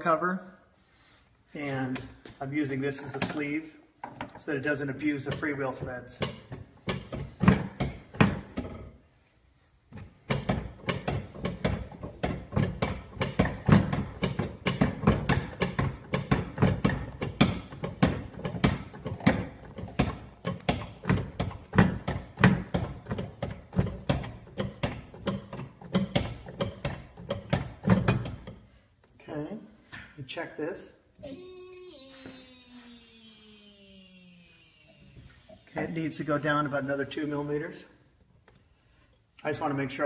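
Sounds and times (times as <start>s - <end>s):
hand pump press clicking and knocking: 5.3s - 8.8s, 9.9s - 28.6s.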